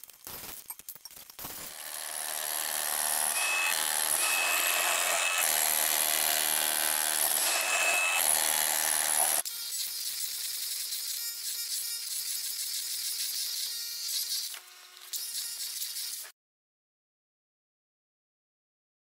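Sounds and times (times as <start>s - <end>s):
rotary hammer scraping floor: 1.5s - 9.4s.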